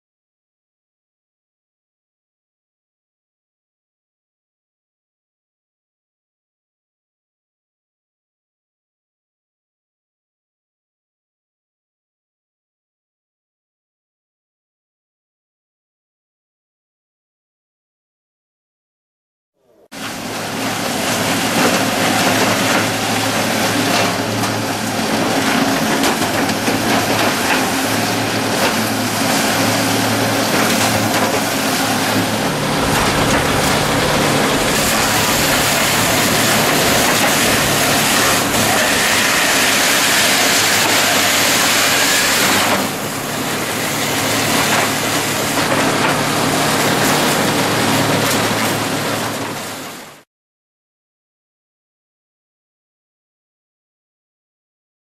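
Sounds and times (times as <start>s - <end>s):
dowel mill machine din: 19.7s - 50.0s
hiss of wood being shaved: 30.9s - 45.5s.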